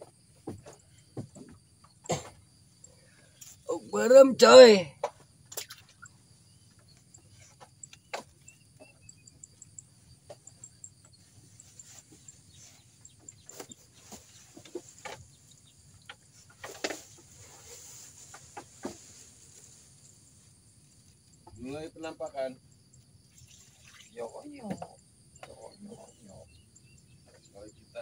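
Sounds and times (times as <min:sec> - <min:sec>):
faint bird chirps: 0:05.5 - 0:19.9, 0:22.8 - 0:28.0.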